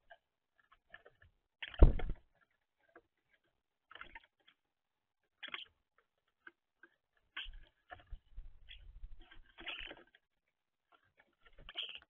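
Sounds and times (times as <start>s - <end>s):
beaks and feet tapping feeder: 5.4s - 10.2s, 10.9s - 12.0s.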